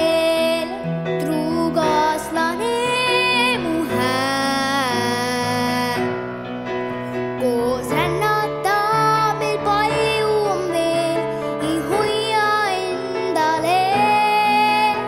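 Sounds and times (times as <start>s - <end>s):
girl singing into a microphone: 0.0s - 6.2s, 7.3s - 15.0s
piano: 0.0s - 15.0s.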